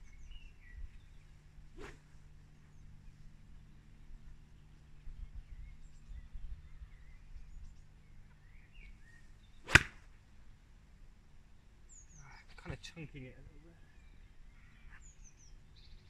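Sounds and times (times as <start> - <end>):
faint bird chirps: 0.0 - 2.0, 2.6 - 9.8, 11.9 - 16.0
golf club striking ball: 9.7 - 10.1.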